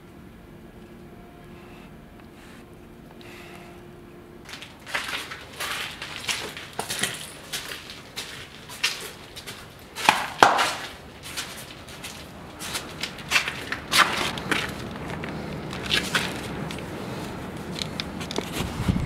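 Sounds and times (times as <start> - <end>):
footsteps crunching on grit: 4.4 - 19.0.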